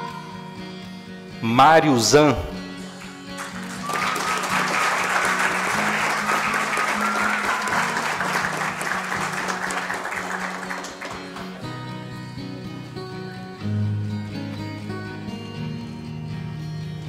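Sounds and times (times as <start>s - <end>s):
background music: 0.0s - 17.0s
audience applauding: 3.0s - 11.8s.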